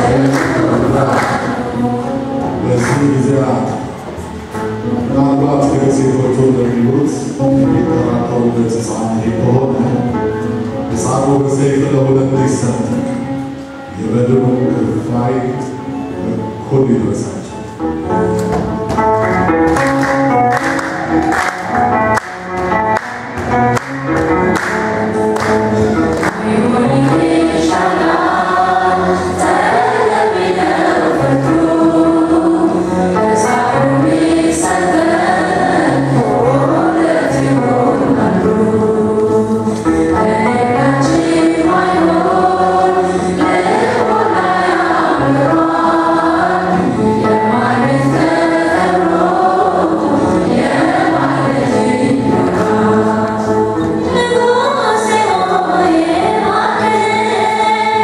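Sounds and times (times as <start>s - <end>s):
choir singing: 0.0s - 10.0s, 24.6s - 58.0s
woman singing through a microphone: 26.3s - 44.4s, 47.3s - 58.0s.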